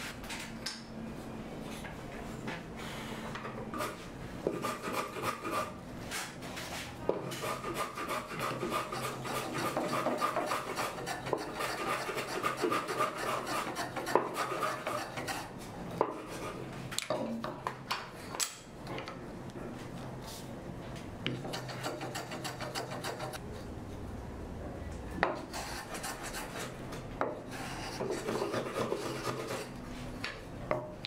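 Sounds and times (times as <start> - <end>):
hand tool rasping wood: 7.3 - 15.5, 21.4 - 23.4, 27.6 - 29.7.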